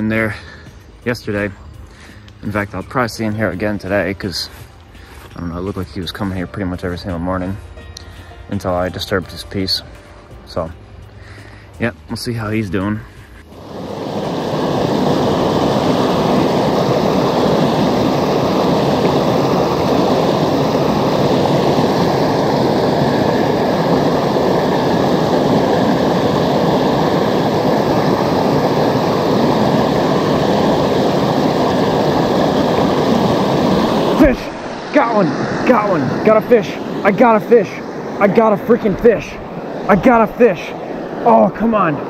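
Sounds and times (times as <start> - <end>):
river water rushing over rocks: 13.6 - 42.0.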